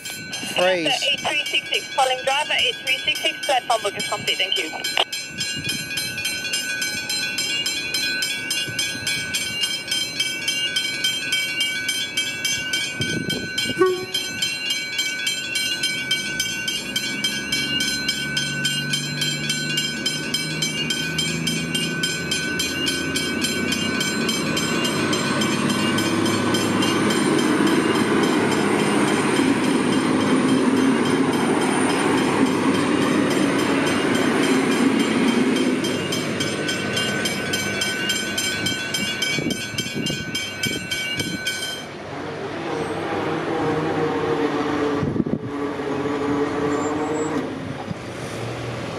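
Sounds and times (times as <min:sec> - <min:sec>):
level crossing bells ringing: 0:00.0 - 0:42.0
train engine and rail noise: 0:00.0 - 0:48.9
train horn: 0:13.7 - 0:14.4.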